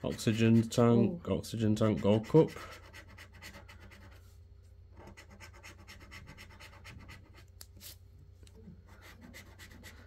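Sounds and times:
scratchcard being scratched: 1.8 - 4.2, 5.0 - 7.4, 9.0 - 10.0.

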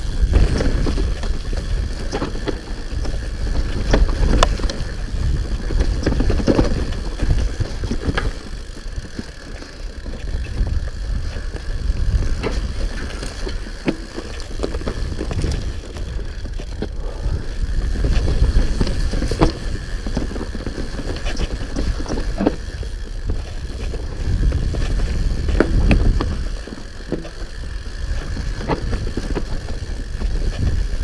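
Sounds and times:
bike clacking and rattling: 0.0 - 31.0
bike tyres rumbling on rocky trail: 0.0 - 31.0
wind on microphone: 21.7 - 26.6.

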